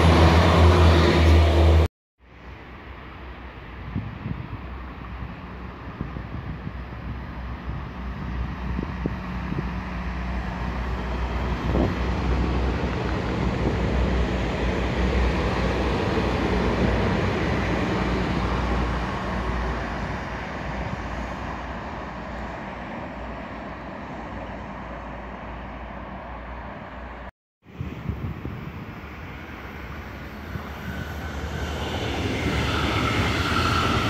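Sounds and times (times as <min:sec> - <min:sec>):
train passing with wheels rumbling: 0:00.0 - 0:34.0.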